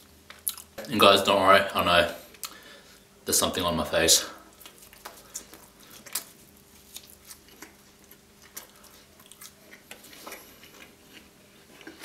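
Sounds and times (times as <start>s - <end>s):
close chewing: 4.5s - 12.0s.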